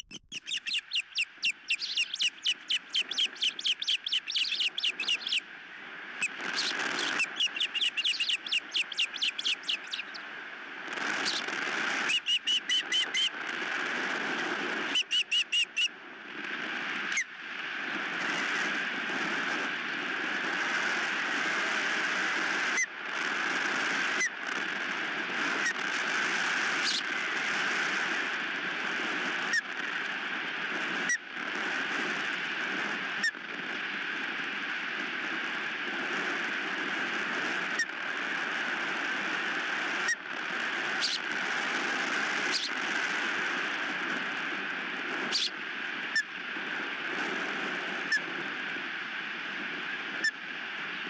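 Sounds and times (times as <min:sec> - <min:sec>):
short high squeak: 0:00.0 - 0:05.4
bird sharp chirps: 0:00.0 - 0:05.5, 0:06.2 - 0:10.2, 0:12.1 - 0:13.3, 0:14.9 - 0:15.9
strong wind on microphone: 0:00.0 - 0:51.0.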